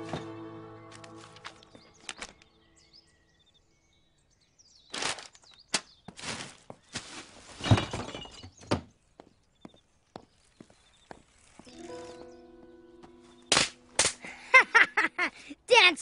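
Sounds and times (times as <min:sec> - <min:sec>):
faint birds chirping: 0:00.0 - 0:16.0
paper rustling and crumpling: 0:01.0 - 0:02.4, 0:04.9 - 0:07.9.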